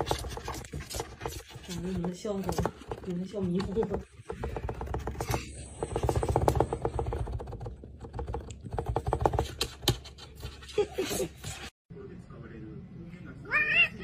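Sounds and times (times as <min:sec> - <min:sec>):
kitten claws clicking on cardboard: 0:00.0 - 0:10.6.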